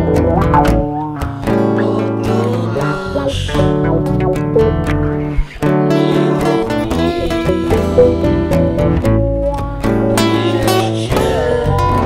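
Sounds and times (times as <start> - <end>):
steady beat: 0.0 - 1.6, 2.9 - 5.2
bass line: 0.0 - 5.5, 6.4 - 10.3
funk guitar: 0.0 - 12.0.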